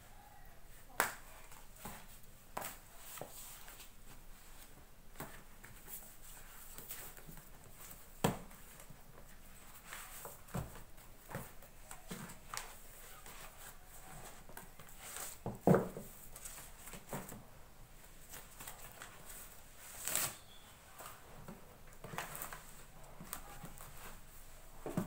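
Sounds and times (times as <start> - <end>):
books knocking on desk: 15.4 - 16.1
paper rustling: 18.1 - 25.0.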